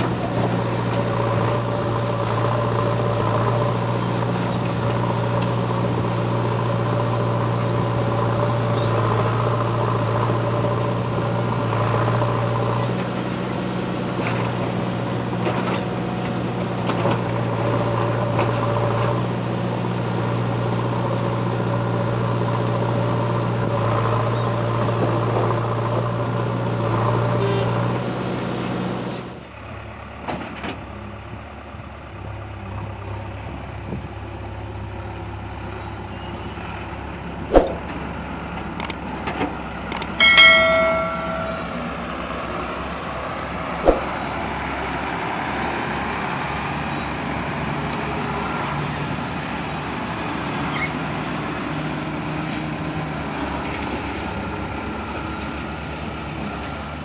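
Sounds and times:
diesel engine under load: 0.0s - 57.0s
backhoe clunks: 30.2s - 31.1s.

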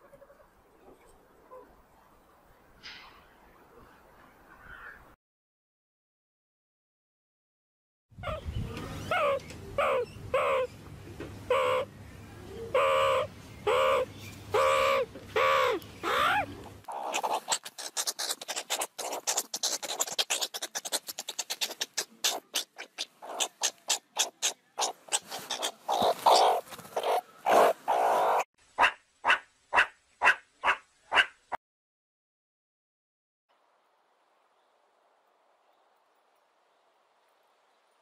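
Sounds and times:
meerkats calling: 8.2s - 10.7s, 11.5s - 11.9s, 12.7s - 31.3s
rapid chirps and clicks: 16.9s - 28.0s.

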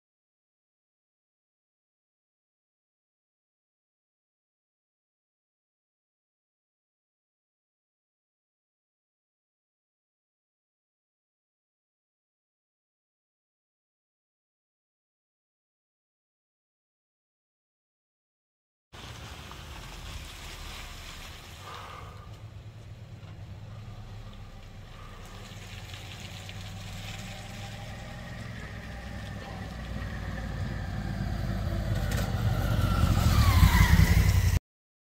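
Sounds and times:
vehicle engine and tyre rumble: 19.0s - 34.6s.

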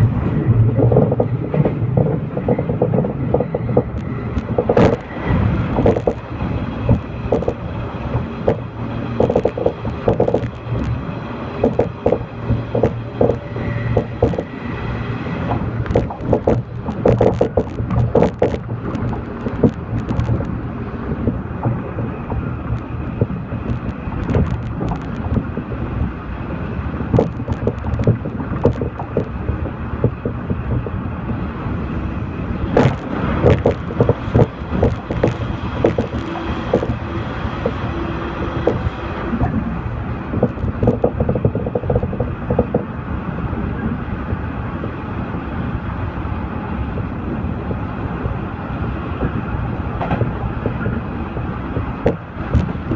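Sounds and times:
train wheels rumbling: 0.0s - 52.9s
clicks and rattles: 0.7s - 5.1s, 5.7s - 11.0s, 11.6s - 14.5s, 15.5s - 20.6s, 21.2s - 25.7s, 27.1s - 31.0s, 32.7s - 37.9s, 40.3s - 42.9s.

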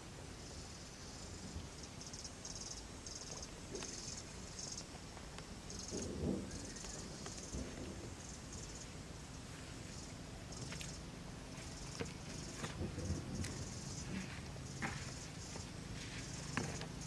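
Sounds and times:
insects buzzing: 0.0s - 17.0s
low rustle: 3.4s - 17.0s.

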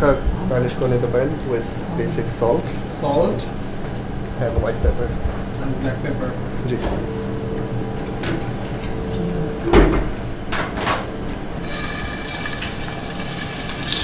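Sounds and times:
steady hum: 0.0s - 14.0s
beef sizzling in frying pan: 11.6s - 14.0s.

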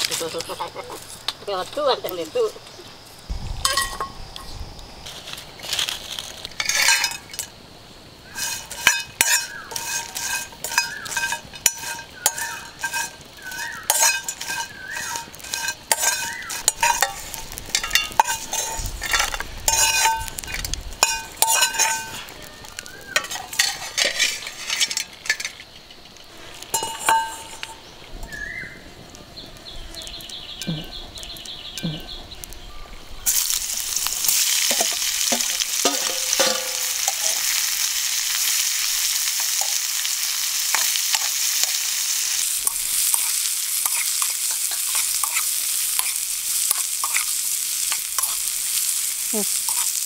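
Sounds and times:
steel ladle scraping iron pan: 5.2s - 7.5s, 8.3s - 25.6s, 26.7s - 27.8s, 33.3s - 48.5s.

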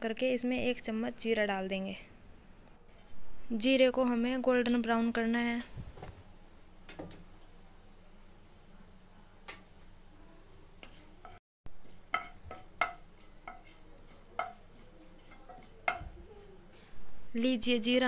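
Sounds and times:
seeds sizzling in hot oil: 5.9s - 16.7s
wooden spatula clacking on pan: 10.8s - 16.2s.

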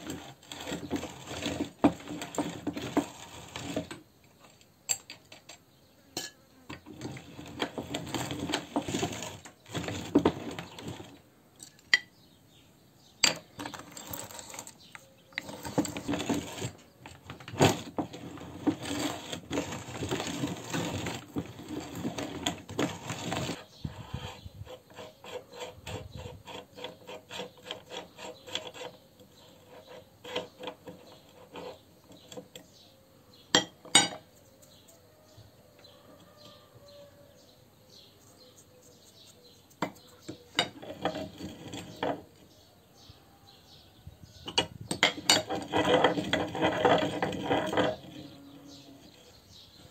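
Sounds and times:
meat grinder crunching candy: 17.7s - 23.6s.

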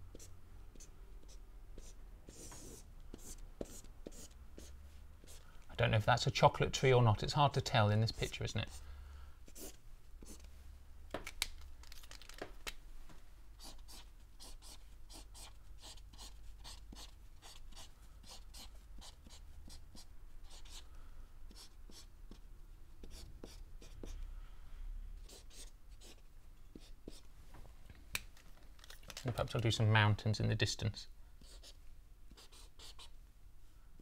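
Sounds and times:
marker pen drawing on paper: 0.1s - 5.4s, 9.5s - 10.5s, 13.6s - 20.8s, 21.5s - 22.4s, 23.0s - 24.2s, 25.2s - 27.2s, 31.4s - 33.1s.

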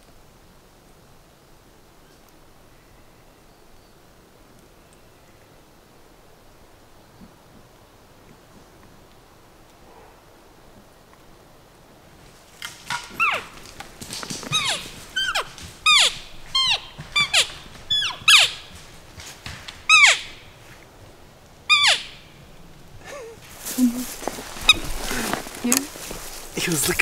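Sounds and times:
elk squealing mews: 12.7s - 19.0s, 19.8s - 20.6s, 21.7s - 22.4s.

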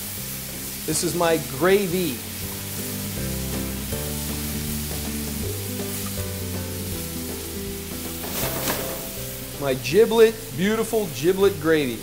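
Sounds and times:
gravy sizzling in a pan: 0.0s - 12.0s
slow music with held notes: 1.8s - 11.3s.

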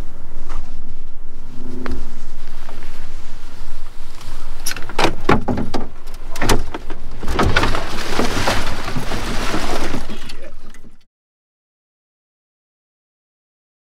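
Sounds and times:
knocks and thumps on boat hull: 4.8s - 10.1s
heavy splashing in water: 7.2s - 11.0s.

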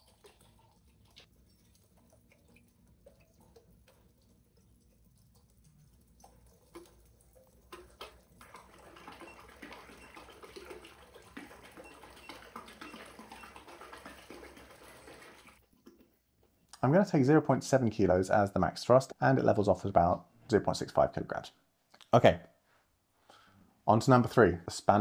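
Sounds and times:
water churning and splashing: 0.0s - 16.0s
water drips: 0.0s - 16.9s.

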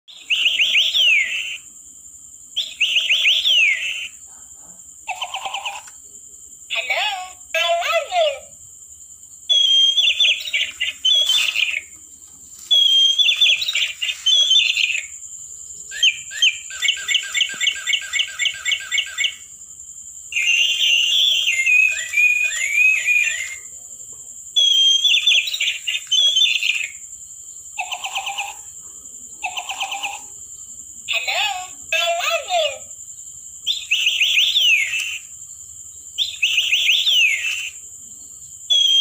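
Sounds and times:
toy parrot electronic bird chirps: 0.1s - 1.6s, 2.6s - 4.2s, 5.1s - 5.9s, 9.5s - 11.9s, 12.7s - 15.1s, 15.9s - 19.4s, 20.4s - 23.6s, 24.6s - 27.0s, 27.8s - 28.7s, 29.4s - 30.3s, 31.1s - 32.9s, 33.7s - 35.3s, 36.2s - 37.8s, 38.7s - 39.0s.

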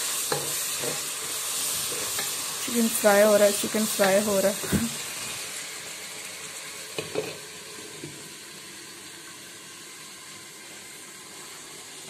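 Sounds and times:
chicken sizzling in oil: 0.0s - 12.0s.

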